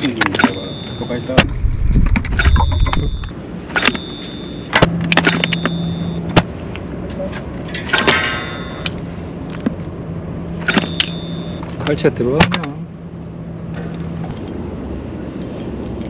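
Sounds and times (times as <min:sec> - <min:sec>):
short bright ding: 0:07.9 - 0:08.9, 0:10.6 - 0:11.6.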